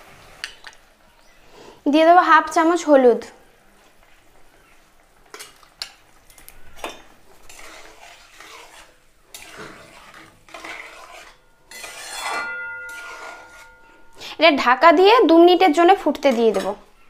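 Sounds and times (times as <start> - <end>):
spatula scraping metal pan: 6.3 - 14.4, 15.6 - 17.0
spatula clinking against pan: 10.6 - 14.3.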